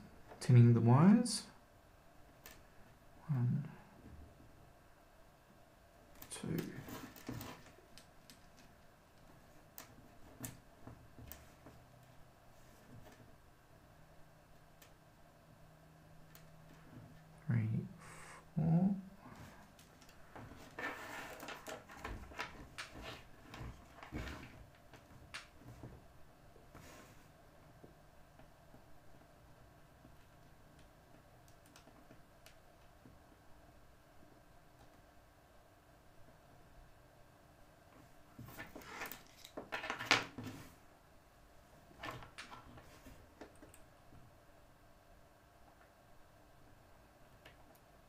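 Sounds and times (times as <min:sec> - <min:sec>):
wires rustling and scraping: 0:06.1 - 0:13.4, 0:19.2 - 0:27.9, 0:37.9 - 0:40.9.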